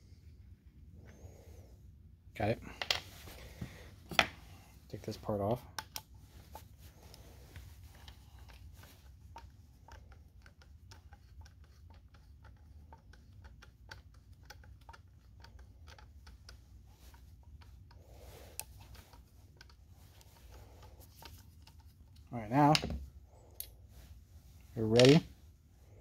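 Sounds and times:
small clicks and taps of tool: 5.7s - 6.1s, 7.9s - 22.2s.

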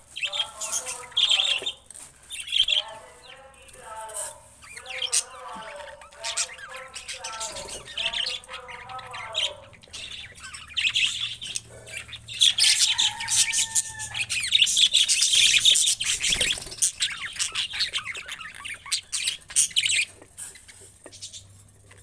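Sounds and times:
budgerigars chirping and squawking: 0.0s - 22.0s.

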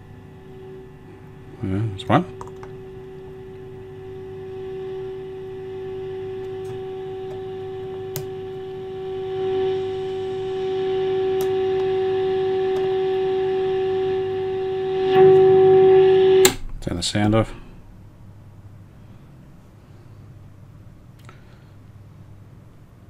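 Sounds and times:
radio test tone: 0.0s - 17.7s.

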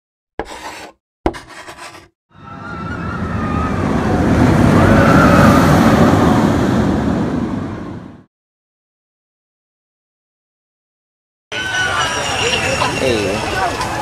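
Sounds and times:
rushing whoosh: 2.6s - 8.3s.

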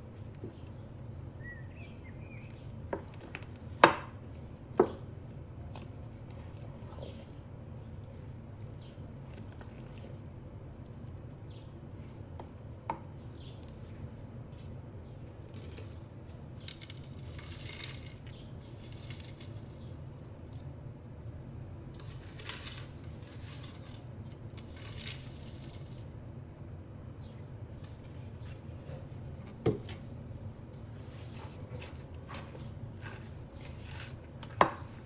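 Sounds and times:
steady low hum: 0.0s - 35.0s
crinkly rustles: 13.6s - 20.7s, 21.9s - 26.1s, 30.8s - 35.0s.

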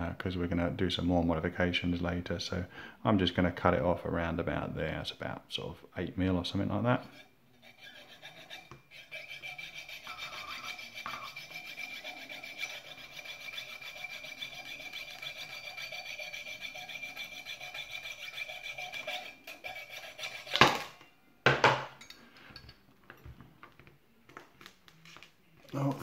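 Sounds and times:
saw cutting through a metal nail: 7.1s - 20.8s.

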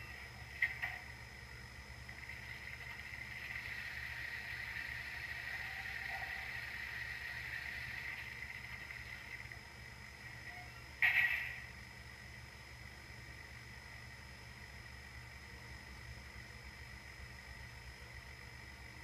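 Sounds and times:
soft steam hiss from small speaker: 2.2s - 11.7s.

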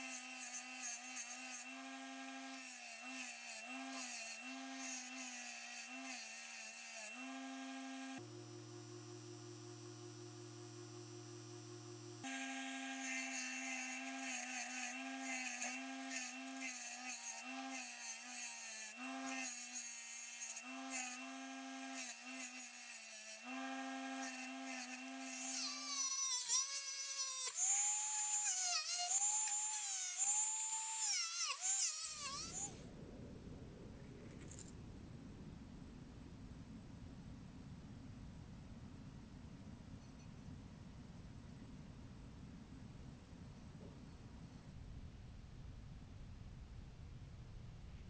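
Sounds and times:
wire wheel motor whine: 7.1s - 14.3s.

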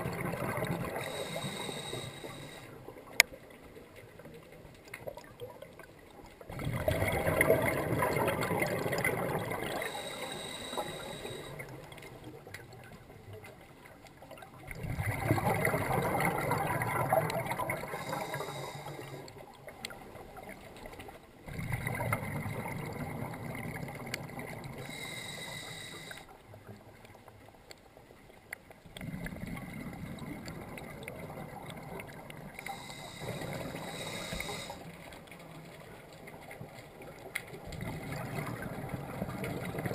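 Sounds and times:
diver exhaling through regulator bubbles: 6.5s - 11.6s, 14.7s - 19.2s, 21.5s - 26.2s.

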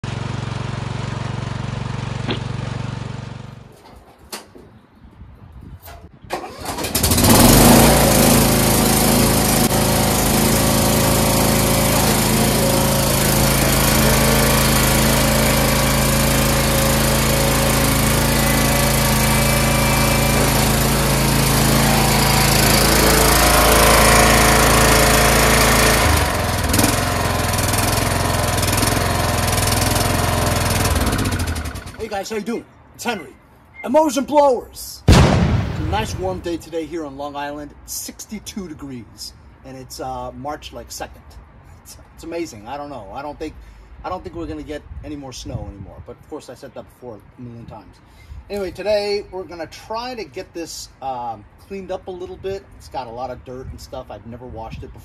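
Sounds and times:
lawn tractor engine running: 0.0s - 3.7s, 6.3s - 32.2s.

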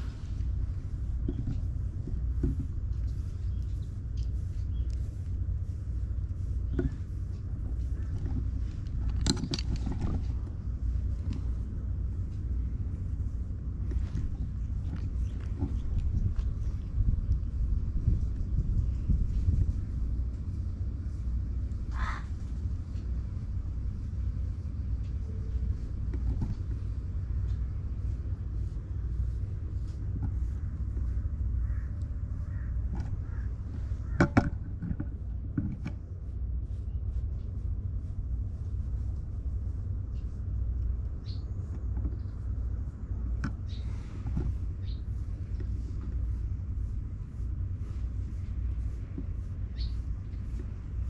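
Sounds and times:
grooming file brushing fur: 0.0s - 16.8s, 35.2s - 51.0s
low rumble: 0.0s - 51.0s
file scratching through fur: 43.6s - 51.0s.

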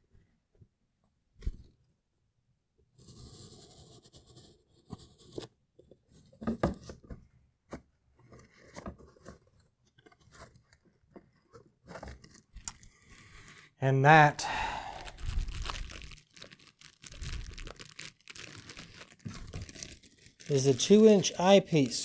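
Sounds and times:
cardboard box being opened: 15.2s - 21.9s.

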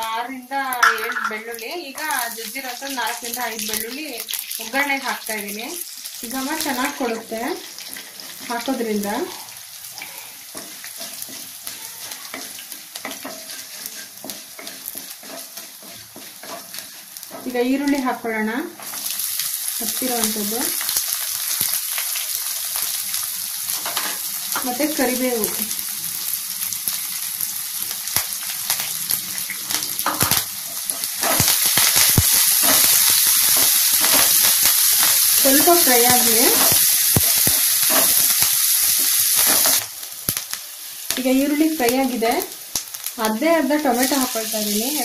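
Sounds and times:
spices sizzling in hot oil: 0.0s - 45.0s
spoon scraping pan: 0.8s - 1.4s, 6.6s - 19.2s, 29.4s - 39.8s.

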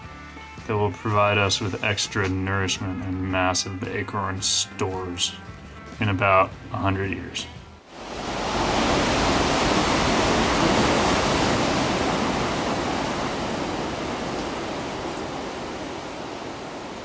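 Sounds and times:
ocean surf: 7.9s - 17.0s.

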